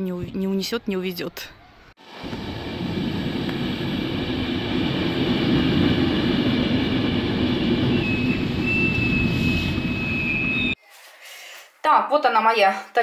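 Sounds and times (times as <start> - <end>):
high thin whine: 2.0 - 10.8
train low rumble: 2.1 - 10.8.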